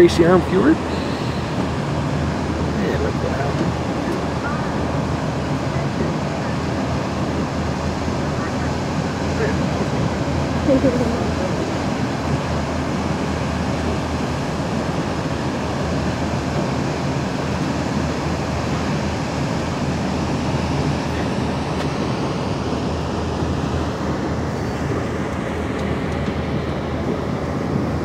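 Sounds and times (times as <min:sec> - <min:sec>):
boat rumble and rush: 0:00.0 - 0:28.0.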